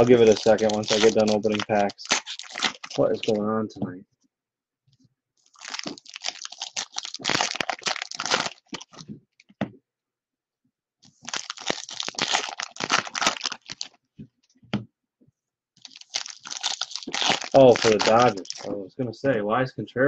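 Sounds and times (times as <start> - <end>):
foil wrapper crinkling: 0.0 - 3.4, 5.4 - 9.0, 11.1 - 14.0, 15.8 - 18.7.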